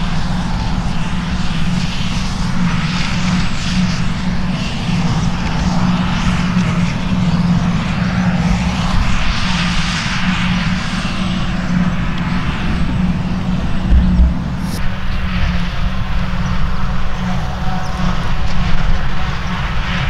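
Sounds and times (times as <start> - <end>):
tractor engine: 12.8 - 15.6.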